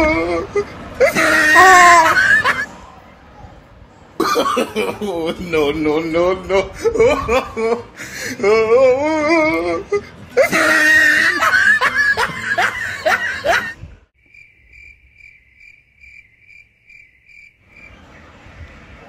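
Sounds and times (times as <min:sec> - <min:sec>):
person laughing: 0:00.0 - 0:02.7, 0:04.2 - 0:13.8
crickets chirping: 0:14.2 - 0:18.8.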